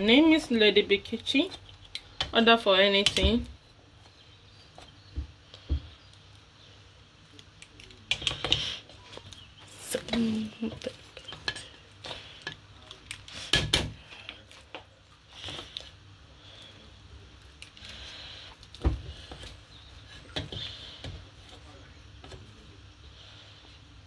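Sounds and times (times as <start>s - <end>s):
utensils and dishes clattering: 10.1s - 12.6s.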